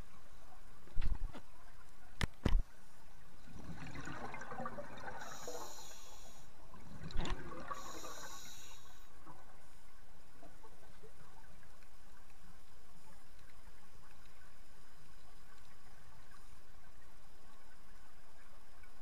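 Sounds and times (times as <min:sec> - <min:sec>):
diver breathing through regulator: 0:05.1 - 0:06.5, 0:07.6 - 0:09.1.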